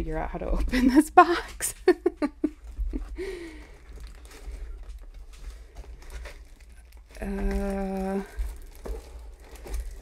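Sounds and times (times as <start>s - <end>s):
cardboard scraping and crinkling: 2.6s - 10.0s.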